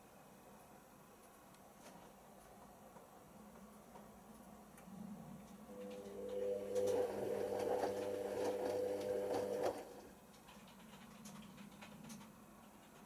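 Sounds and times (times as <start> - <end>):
washing machine drum motor humming: 5.5 - 10.3.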